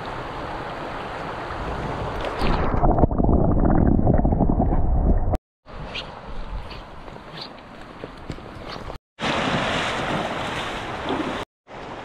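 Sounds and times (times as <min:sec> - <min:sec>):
stream water rushing: 0:00.0 - 0:02.5
underwater current rumble: 0:01.7 - 0:05.4.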